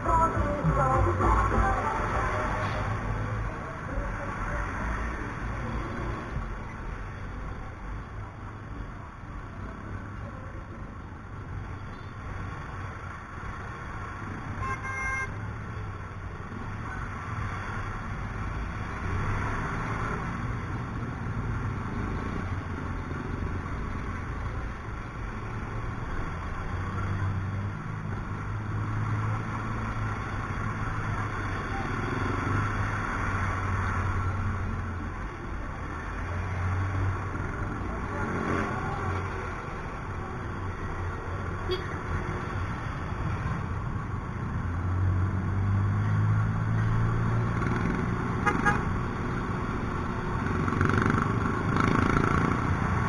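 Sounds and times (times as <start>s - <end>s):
traffic noise: 0.0s - 53.0s
vehicle horn toot: 14.6s - 15.4s, 41.7s - 41.9s, 48.4s - 48.9s.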